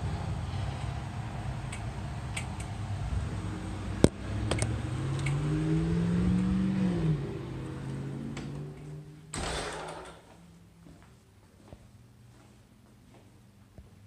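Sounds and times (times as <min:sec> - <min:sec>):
car engine accelerating: 0:00.0 - 0:10.3
low traffic rumble: 0:00.0 - 0:13.8.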